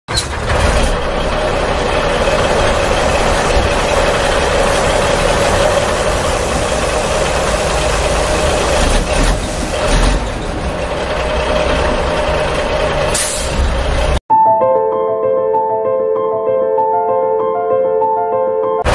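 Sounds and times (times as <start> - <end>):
vehicle engine running: 0.1 - 14.2.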